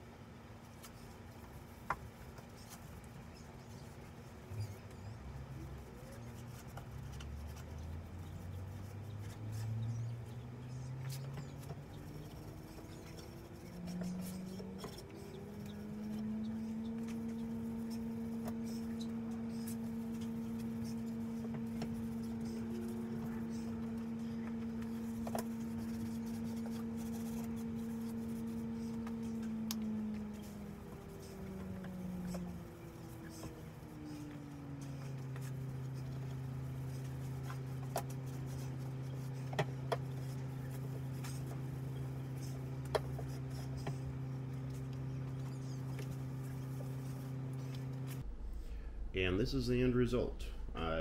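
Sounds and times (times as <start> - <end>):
low steady tone: 40.1 - 51.0.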